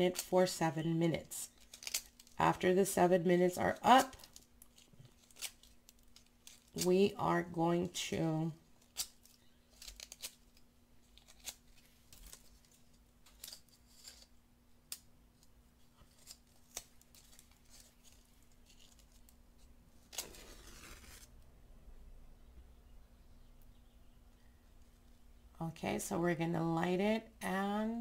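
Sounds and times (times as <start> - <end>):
match striking and flaring: 20.1 - 21.3.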